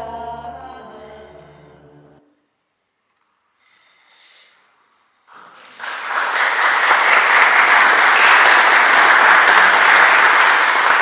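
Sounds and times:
audience applauding: 5.3 - 11.0.

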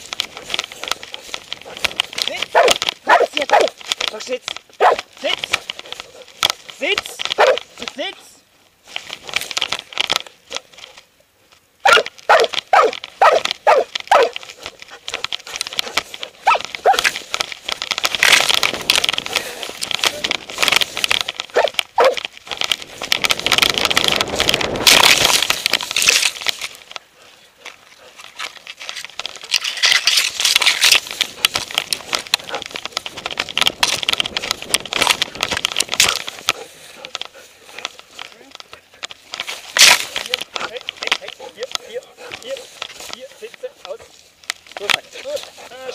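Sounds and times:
dog barking: 2.5 - 3.7, 4.8 - 5.0, 7.4 - 7.6, 11.8 - 14.4, 16.4 - 17.0, 21.6 - 22.2.

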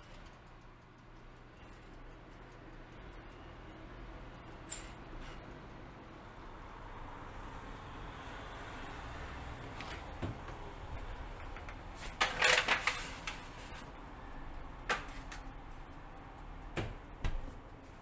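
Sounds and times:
foil tray crinkling on oven rack: 12.0 - 13.8.

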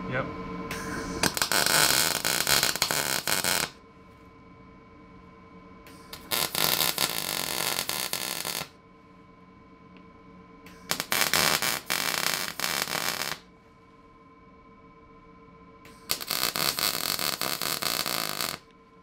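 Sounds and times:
faint steady hum: 0.0 - 19.0
crackling welding arc: 0.7 - 3.8, 5.9 - 8.8, 10.7 - 13.5, 15.9 - 18.6.

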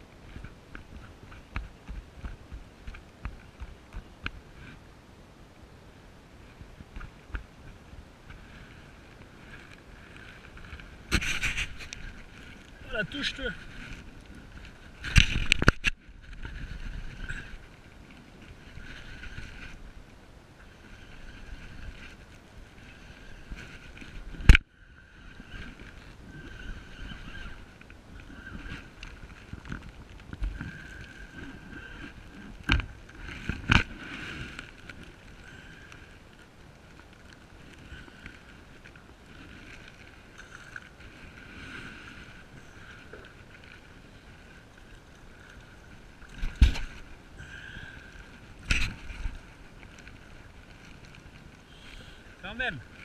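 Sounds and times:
water lapping against kayak hull: 6.4 - 53.0
wind on microphone: 9.9 - 34.6.

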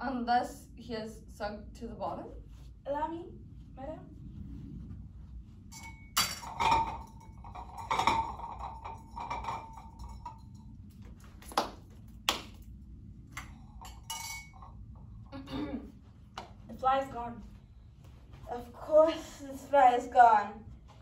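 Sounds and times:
tableware clinking: 5.7 - 10.8, 13.4 - 14.8.

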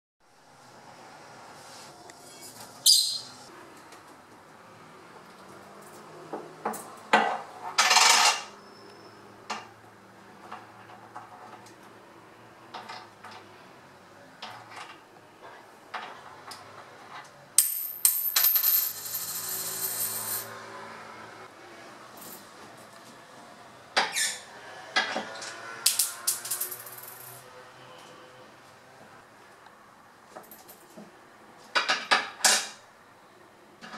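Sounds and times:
coins clinking on a wooden table: 7.8 - 8.5, 17.6 - 20.6, 26.3 - 27.4.

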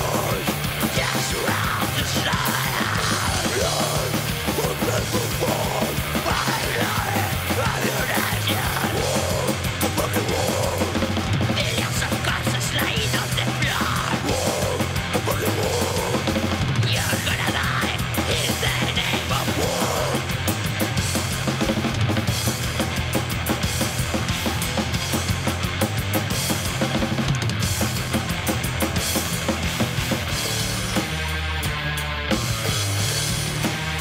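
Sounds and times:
harsh vocals: 0.0 - 21.9
metal band playing: 0.0 - 34.0.

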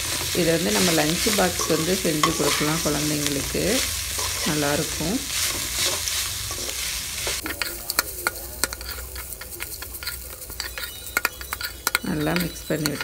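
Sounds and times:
metal spatula scraping pan: 0.0 - 13.0
oil sizzling: 0.0 - 13.0
spatula clicking on pan: 7.3 - 13.0.

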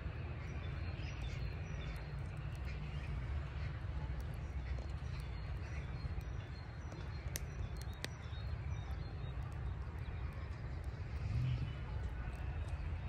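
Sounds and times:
low outdoor rumble: 0.0 - 13.0
sharp clicks: 7.2 - 8.3.

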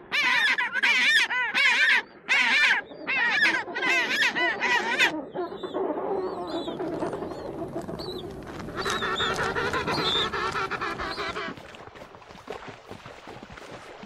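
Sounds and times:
penguins braying: 8.6 - 11.5.

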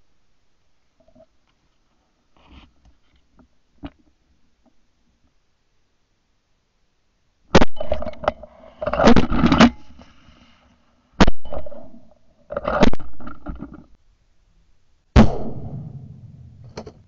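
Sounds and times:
shotgun shots: 15.2 - 16.8.

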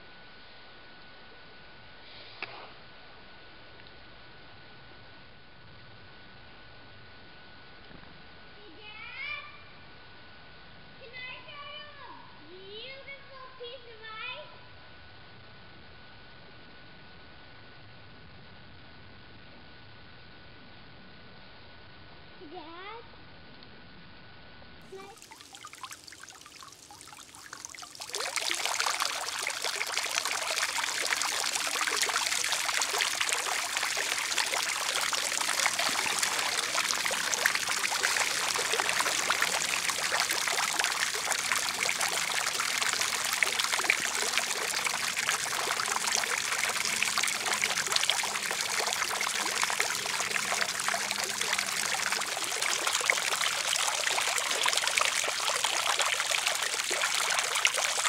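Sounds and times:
fountain water splashing: 24.9 - 58.0.

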